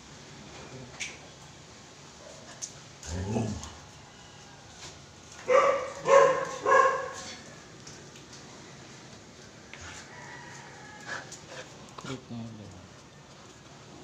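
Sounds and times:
dog barking: 5.4 - 7.4.

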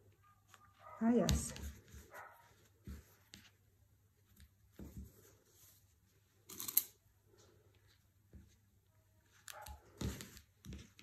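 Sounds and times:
fabric rustling on cutting mat: 0.5 - 6.5.

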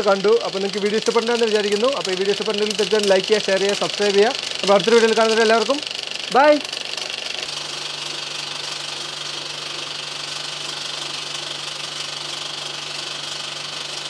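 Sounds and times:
film projector clatter: 0.0 - 14.0.

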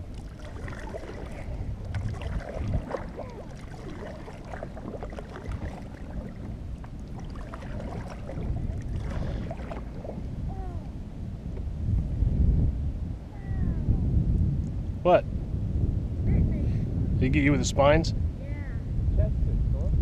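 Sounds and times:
paddle splashing in water: 0.0 - 10.4
low microphone rumble: 0.0 - 20.0.

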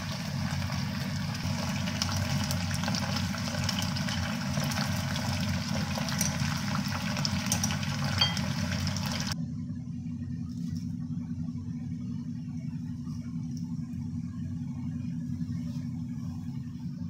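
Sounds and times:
chicken sizzling in hot oil: 0.0 - 9.4
steady low hum: 0.0 - 17.0.

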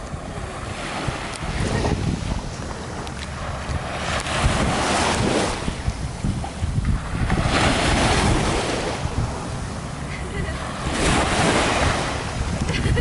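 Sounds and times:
small waves washing onto sand: 0.0 - 13.0
wind rumbling on microphone: 0.0 - 13.0.

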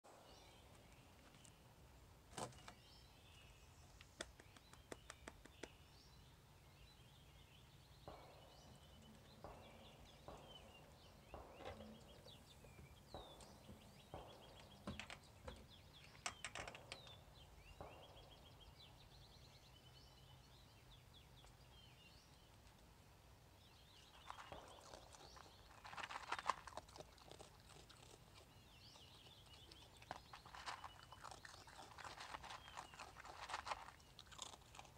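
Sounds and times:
songbirds chirping: 0.0 - 34.9
raccoon eating from plastic tub: 24.0 - 34.9.

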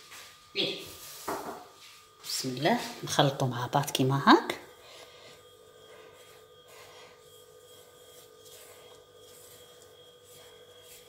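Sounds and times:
hand rubbing crumbly mixture: 5.5 - 11.0.

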